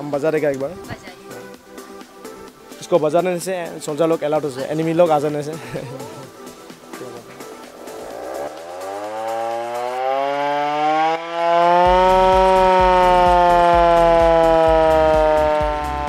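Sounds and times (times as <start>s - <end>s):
hand-cranked air-raid siren wailing: 8.2s - 16.0s.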